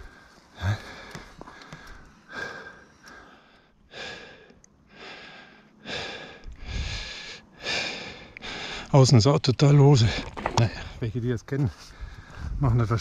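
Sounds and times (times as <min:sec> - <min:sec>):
person breathing heavily: 0:00.0 - 0:09.0.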